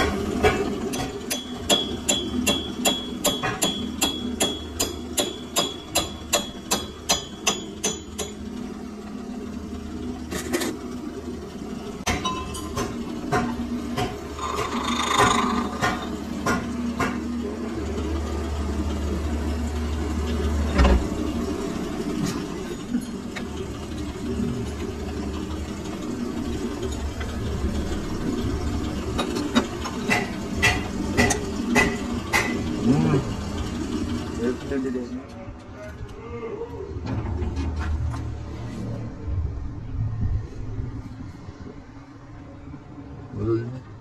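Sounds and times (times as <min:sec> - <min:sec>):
steady low hum: 0:00.0 - 0:44.0
hammer striking steel: 0:00.4 - 0:08.4, 0:29.2 - 0:32.6.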